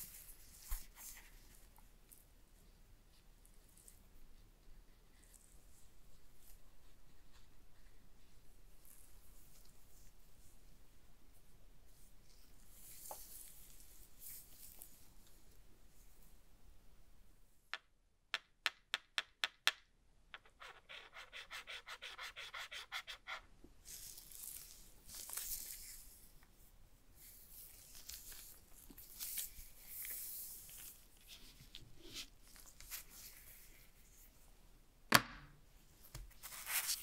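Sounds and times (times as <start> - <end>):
scratching and rubbing: 20.4 - 26.0.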